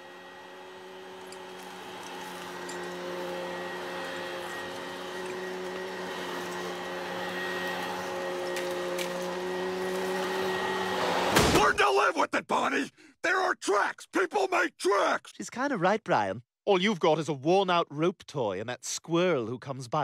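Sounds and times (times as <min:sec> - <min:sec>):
vacuum cleaner running: 0:00.0 - 0:11.4.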